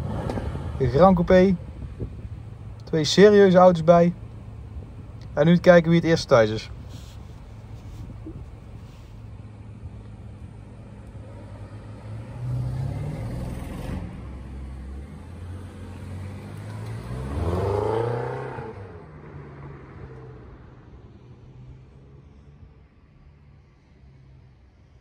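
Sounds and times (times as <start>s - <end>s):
car engine accelerating: 0.0s - 1.4s, 6.9s - 20.6s
cars idling: 0.0s - 11.9s.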